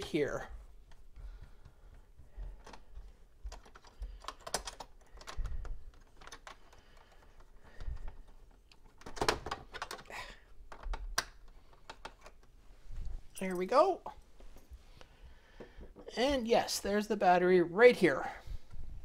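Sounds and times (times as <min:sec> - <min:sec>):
small clicks and taps: 0:00.8 - 0:10.1, 0:10.7 - 0:12.6.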